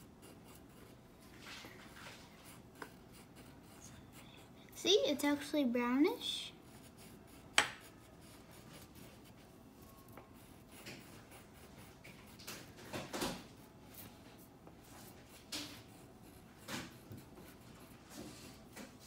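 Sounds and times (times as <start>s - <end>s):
crayon rubbing on paper: 6.5s - 12.7s, 13.9s - 18.8s.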